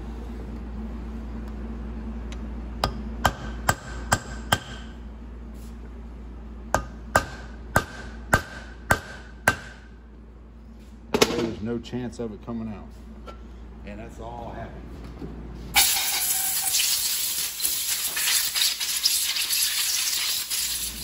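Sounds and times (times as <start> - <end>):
hammer tapping on metal: 2.8 - 4.9, 6.7 - 9.8.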